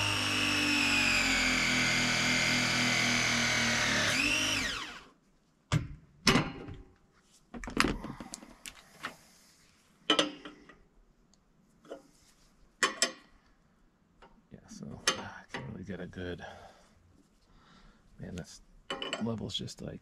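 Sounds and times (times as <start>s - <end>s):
press tool motor whirring: 0.0s - 5.1s.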